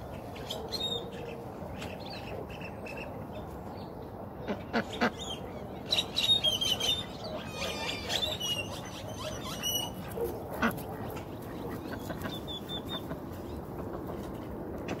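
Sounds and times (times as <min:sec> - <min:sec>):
ducks quacking: 0:04.4 - 0:05.4, 0:07.4 - 0:14.1.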